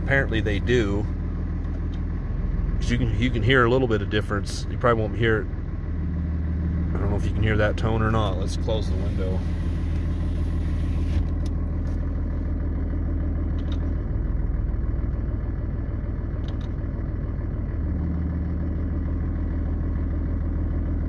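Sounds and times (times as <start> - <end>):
faint high exhaust tone: 0.0 - 12.7
diesel engine idling: 0.0 - 21.0.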